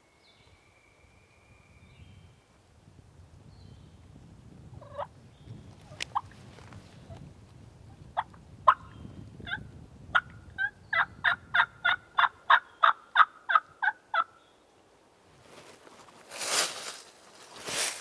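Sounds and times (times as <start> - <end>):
wild turkey yelping: 10.6 - 14.3.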